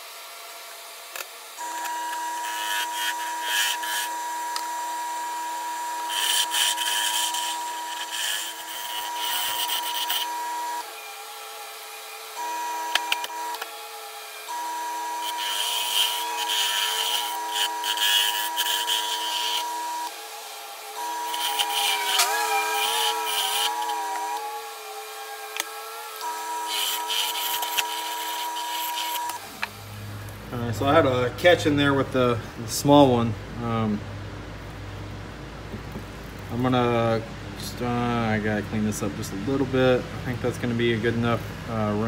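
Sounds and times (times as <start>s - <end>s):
lathe motor whining: 0.0s - 32.3s
gouge scraping wood: 6.0s - 10.4s, 15.2s - 19.8s, 21.2s - 25.9s, 26.6s - 29.4s.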